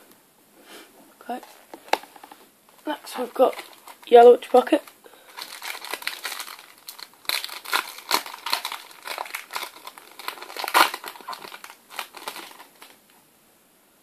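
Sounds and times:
foil wrapper crinkling: 3.2s - 13.1s.

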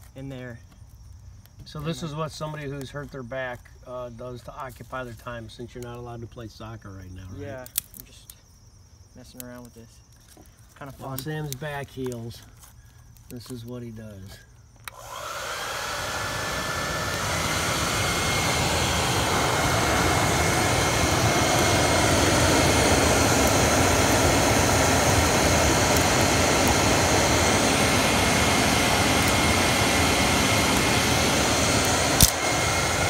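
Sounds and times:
hair dryer blowing: 14.9s - 33.0s
sharp click: 32.2s - 32.4s.

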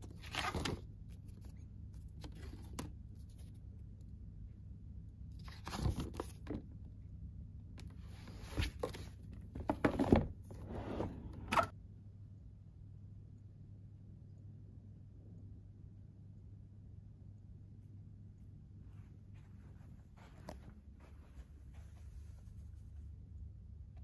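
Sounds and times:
paper menu pages rustling: 0.0s - 3.6s, 5.4s - 6.6s, 8.0s - 10.6s
steady low hum: 0.0s - 24.0s.

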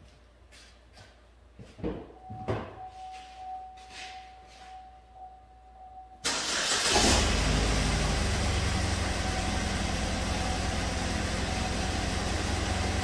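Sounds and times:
car engine cranking: 6.2s - 11.4s
engine idling with misfire: 6.3s - 13.0s.

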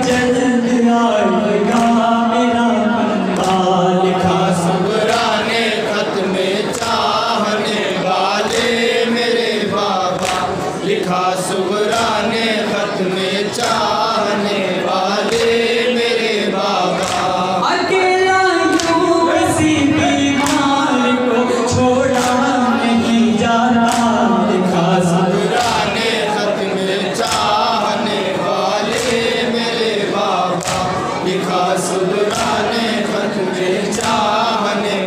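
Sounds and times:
men chanting in unison: 0.0s - 35.0s
hands slapping chests: 10.1s - 10.6s, 17.0s - 17.4s, 23.8s - 24.3s, 27.2s - 27.6s, 30.6s - 31.0s.

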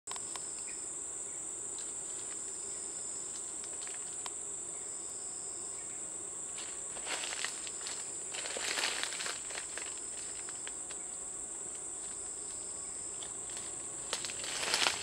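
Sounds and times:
insects droning: 0.1s - 15.0s
rustles in dry leaf litter: 6.5s - 10.8s, 13.3s - 15.0s.

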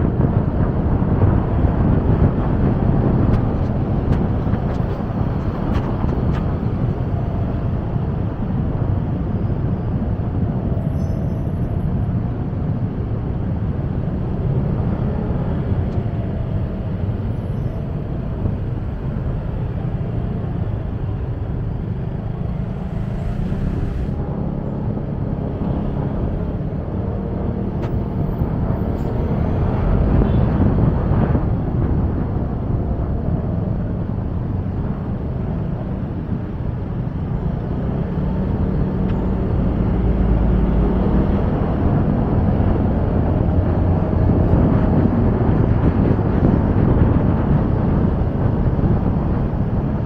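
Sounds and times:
road and traffic rumble: 0.0s - 50.0s.

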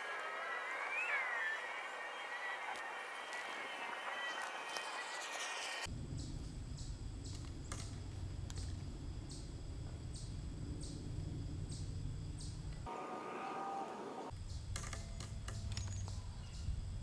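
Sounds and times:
insects chirping: 0.2s - 17.0s
steady low rumble: 5.9s - 12.9s.

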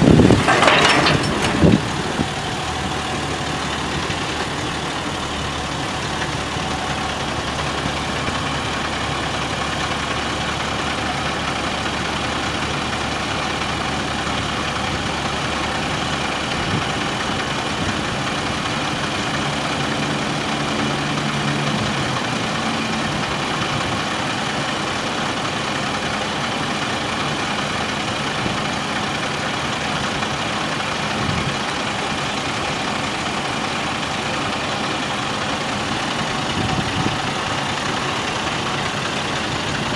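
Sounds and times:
hydraulic hoist: 0.0s - 2.5s
diesel truck idling: 0.0s - 39.9s.

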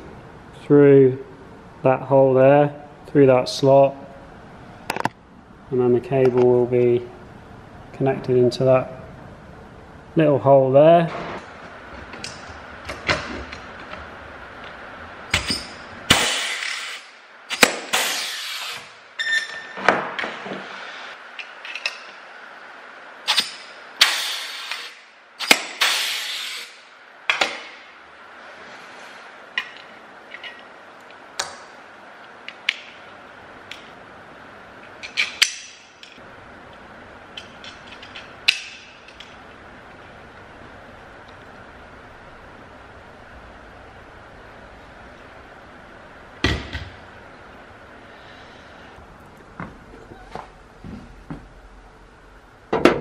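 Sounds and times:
metal parts clinking: 21.4s - 22.2s, 37.4s - 39.4s.

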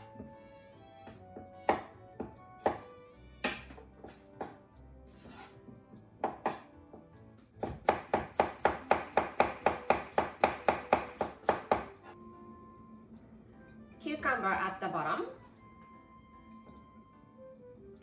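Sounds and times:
background music: 0.0s - 18.0s
knife chopping on wooden board: 1.4s - 4.6s, 6.2s - 7.0s, 7.6s - 12.1s.

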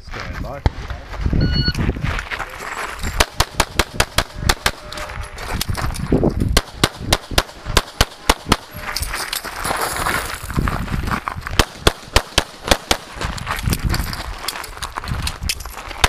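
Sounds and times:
rapid pistol fire: 3.2s - 4.8s, 6.5s - 8.7s, 11.6s - 13.1s.

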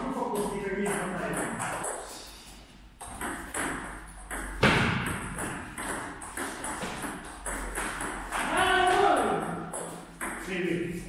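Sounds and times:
man calling out: 8.4s - 9.5s.

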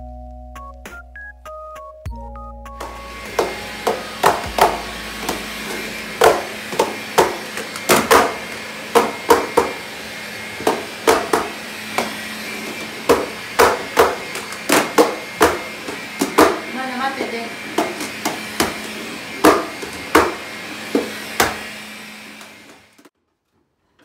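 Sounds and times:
knocks on wooden stairs: 2.8s - 9.8s, 10.6s - 12.2s, 13.0s - 16.6s, 19.4s - 20.4s
stick vacuum whine: 2.8s - 23.1s.

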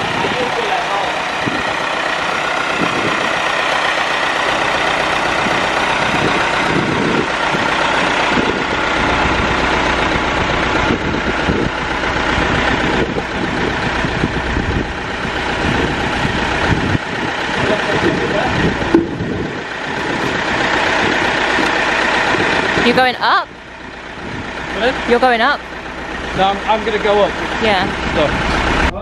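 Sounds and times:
engine idling: 0.0s - 29.0s.

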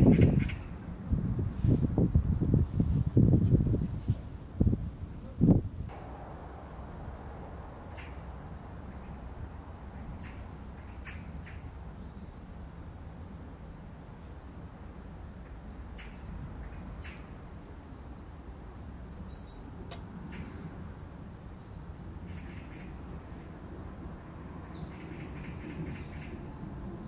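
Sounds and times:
low outdoor rumble: 0.0s - 27.0s
small birds chirping: 6.0s - 20.6s.

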